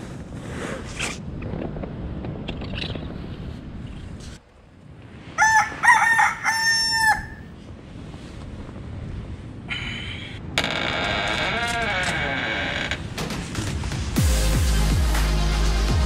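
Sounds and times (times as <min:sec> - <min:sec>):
rooster crowing: 0:05.4 - 0:07.5.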